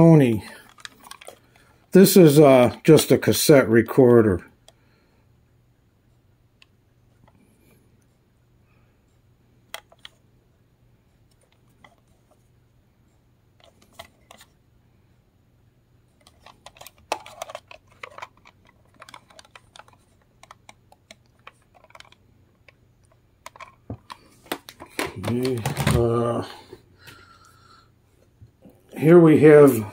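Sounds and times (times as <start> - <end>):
plastic clicks and taps: 23.4 - 26.0.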